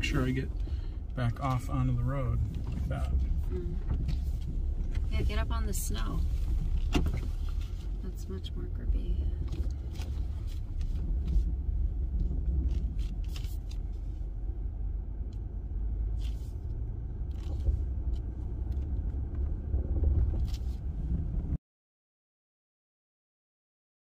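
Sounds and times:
low rumble of engine and tyres: 0.0 - 21.6.

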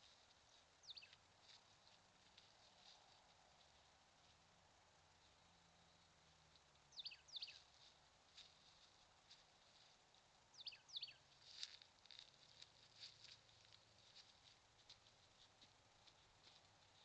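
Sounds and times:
small bird chirping: 0.4 - 1.2, 6.7 - 7.8, 10.5 - 11.3.

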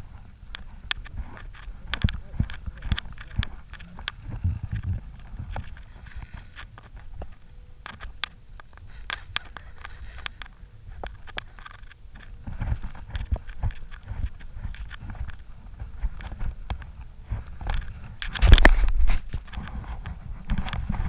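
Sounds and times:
low rumble of wind and water: 0.0 - 21.0
fishing reel clicks and knocks: 5.5 - 12.3.

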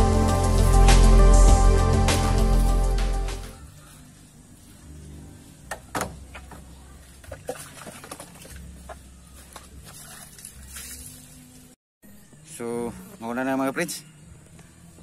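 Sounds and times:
water splashing: 7.0 - 11.4.

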